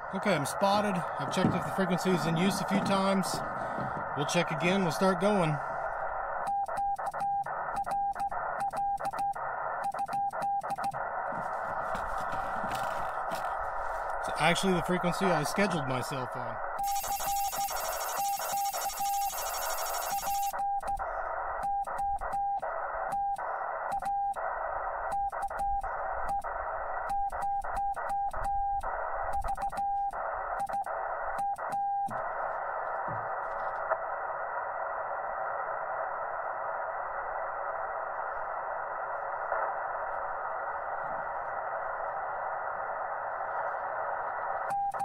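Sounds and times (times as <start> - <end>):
receiver hiss: 0.0 - 45.0
morse code beeps: 16.8 - 21.0.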